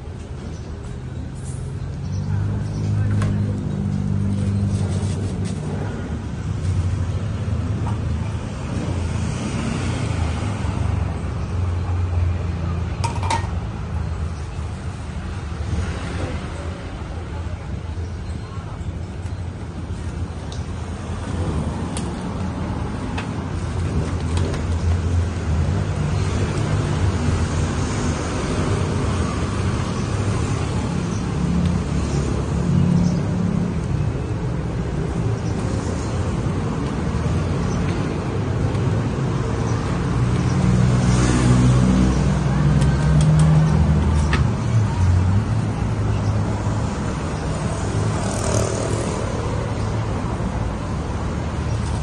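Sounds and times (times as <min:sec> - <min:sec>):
road traffic rumble: 0:00.0 - 0:52.0
vehicle engine hum: 0:18.7 - 0:52.0.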